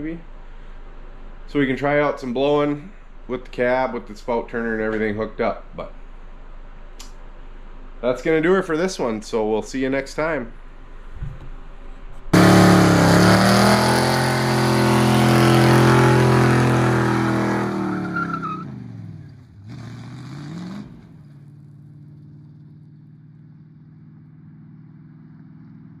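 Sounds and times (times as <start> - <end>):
engine revving and idling: 12.3 - 26.0.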